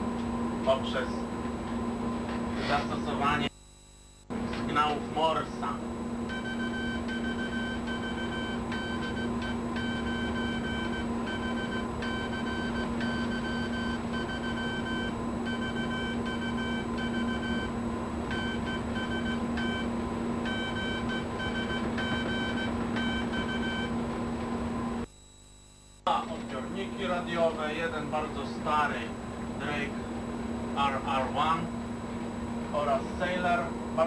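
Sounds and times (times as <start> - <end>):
low equipment hum: 0.0 - 34.0
morse code beeping tone: 6.2 - 24.0.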